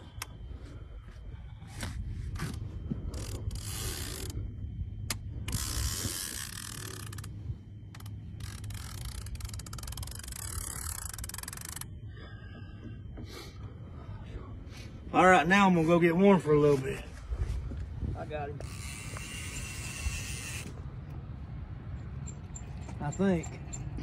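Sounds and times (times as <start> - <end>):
steady low rumble: 0.0 - 24.0
fishing reel ratcheting clicks: 3.1 - 4.4, 5.1 - 7.3, 7.9 - 11.9, 18.6 - 20.7.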